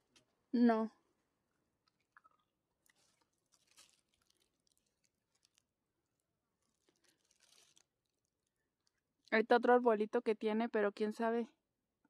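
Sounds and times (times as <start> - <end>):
faint crackles and ticks: 1.5 - 9.5.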